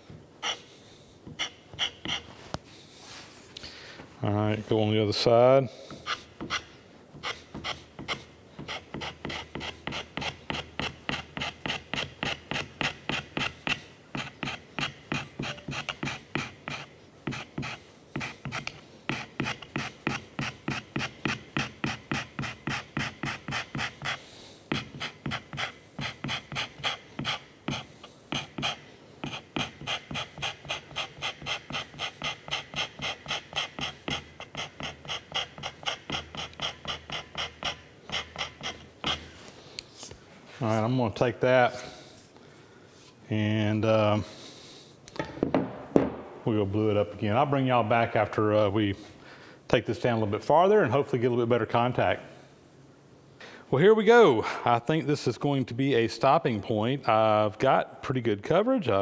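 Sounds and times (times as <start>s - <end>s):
hand scraper scraping strokes: 0.4s - 3.3s, 5.8s - 40.8s.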